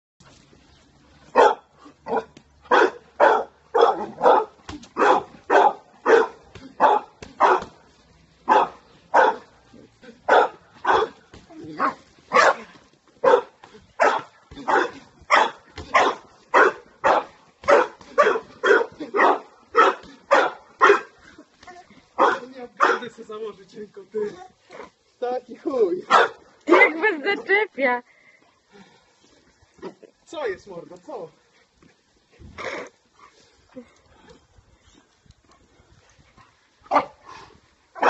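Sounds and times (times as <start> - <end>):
dog barking: 1.3 - 7.7, 8.5 - 9.5, 10.3 - 11.2, 11.8 - 21.2, 22.2 - 23.1, 26.1 - 26.9, 36.9 - 37.2.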